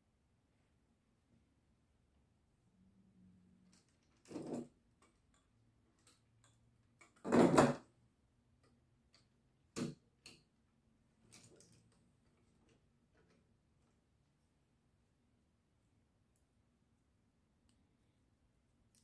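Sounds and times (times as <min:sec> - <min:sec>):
plastic toy knocking and clattering: 0:07.0 - 0:07.9.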